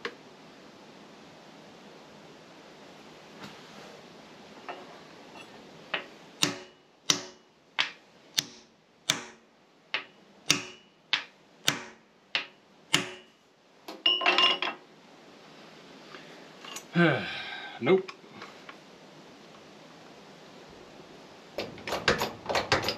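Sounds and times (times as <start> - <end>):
hammer blows on metal: 6.4 - 7.5, 10.0 - 13.4.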